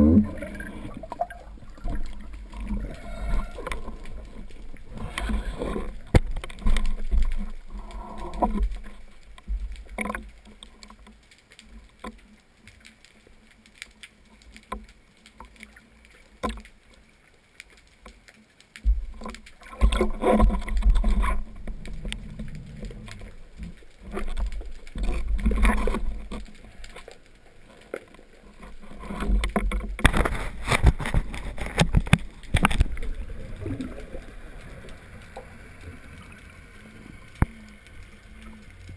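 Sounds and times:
low underwater rumble: 0.0 - 10.0, 28.3 - 38.9
underwater bubbles: 0.0 - 38.9.

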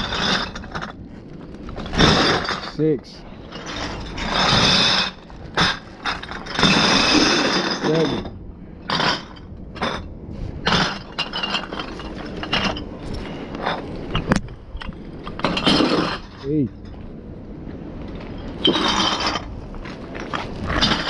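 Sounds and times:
glass bottles clinking: 0.0 - 1.0, 3.4 - 17.0, 18.3 - 21.0.

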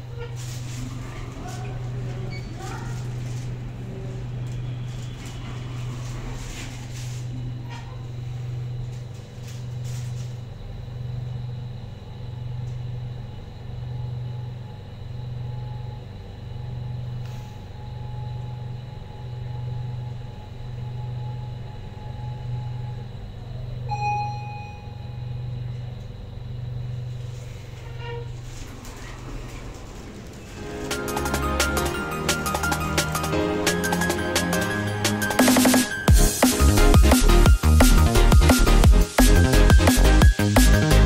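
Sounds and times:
elevator throbbing rumble: 0.0 - 41.0
elevator whine: 0.0 - 41.0
elevator arrival chime: 19.5 - 26.0.

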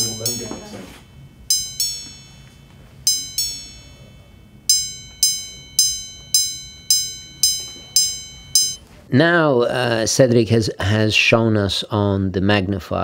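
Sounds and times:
watch chiming on high gongs: 0.0 - 8.8.

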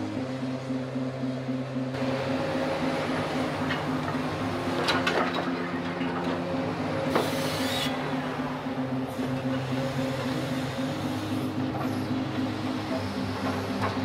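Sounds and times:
excavator engine humming: 0.0 - 14.0
metal clanks and scraping: 3.6 - 6.5.

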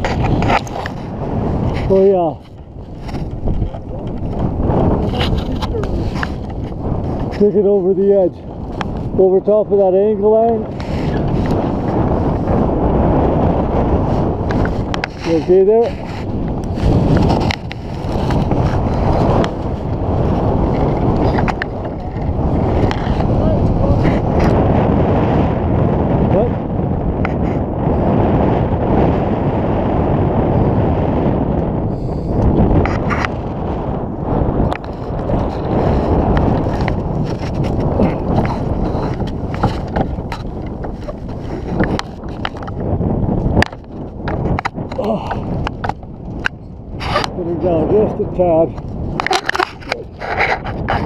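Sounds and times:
wind buffeting microphone: 0.0 - 51.0.

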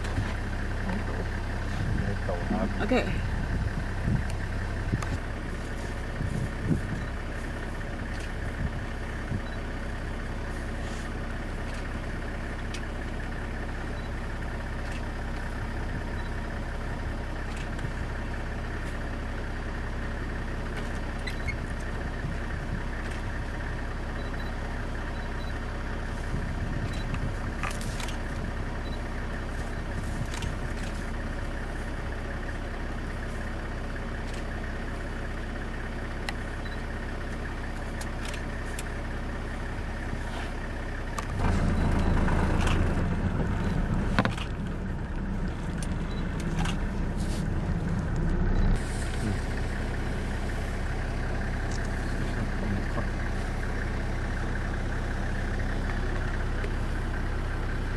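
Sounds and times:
vehicle engine idling: 0.0 - 57.9.

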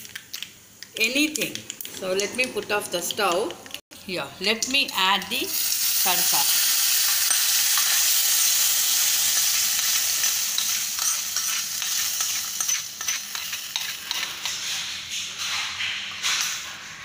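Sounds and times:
hot oil sizzling: 4.5 - 15.8
metal spoon scraping a pan: 7.1 - 16.7.

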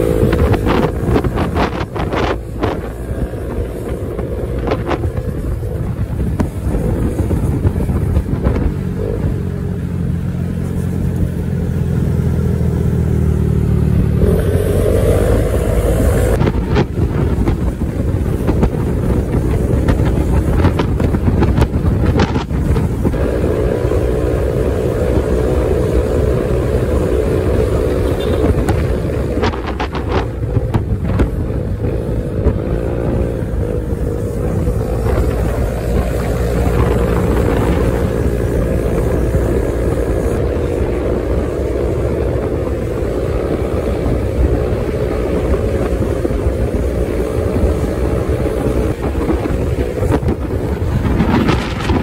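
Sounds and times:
scooter engine running: 0.0 - 52.0.

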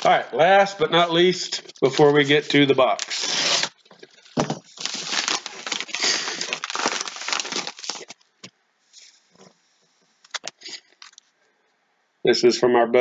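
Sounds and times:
paper and plastic crinkling: 0.9 - 8.2, 10.2 - 11.3
envelope ripping open: 1.8 - 8.2.

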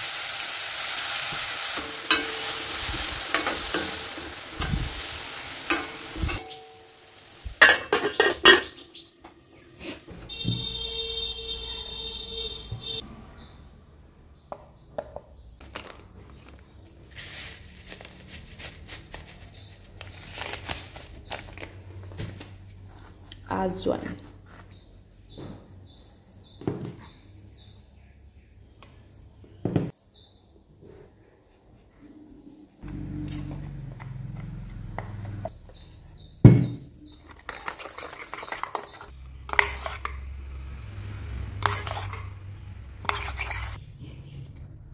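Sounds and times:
bird chirping: 8.0 - 15.6, 24.6 - 30.7, 35.2 - 39.2
plastic packet crinkling: 15.6 - 22.5
metal spoon scraping steel bowl: 37.3 - 40.3, 41.6 - 42.4, 43.0 - 44.7.

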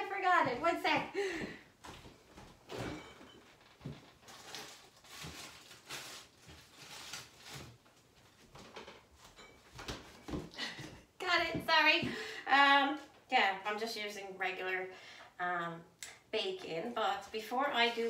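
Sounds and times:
footsteps: 0.0 - 3.0, 9.2 - 12.3.

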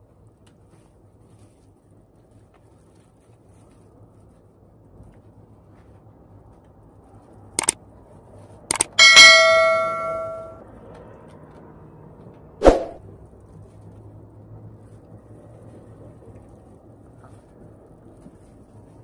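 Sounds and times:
button clicks: 8.7 - 10.5
bright bell ding: 8.7 - 10.6.

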